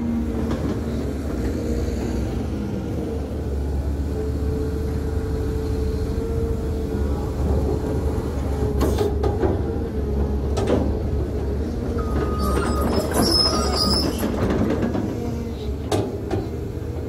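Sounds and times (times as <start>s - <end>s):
excavator running: 0.0s - 17.0s
short high squeaks: 12.0s - 14.4s.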